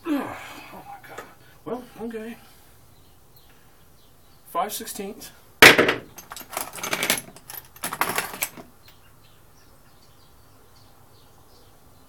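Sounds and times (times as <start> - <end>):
metal tools clinking: 5.6 - 8.7.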